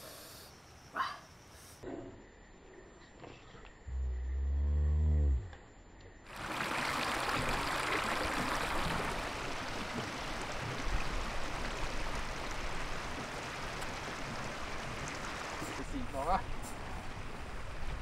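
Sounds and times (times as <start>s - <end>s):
floodwater rushing: 6.3s - 18.0s.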